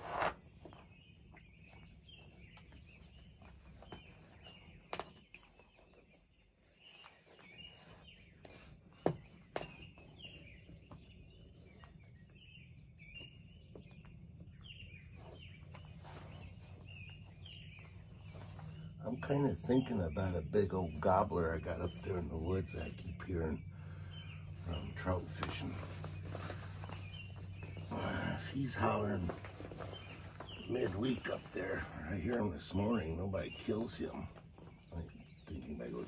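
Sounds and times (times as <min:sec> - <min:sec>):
birds chirping and singing: 0:00.0 - 0:36.0.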